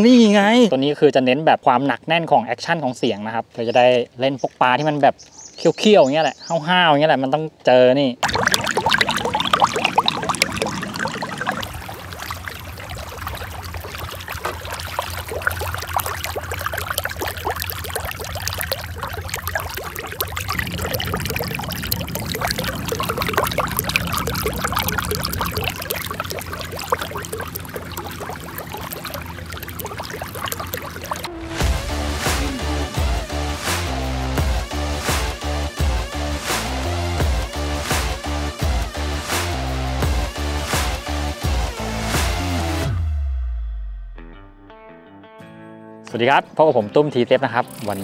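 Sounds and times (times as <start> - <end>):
water splashing and trickling: 8.2 - 34.6, 47.4 - 48.0.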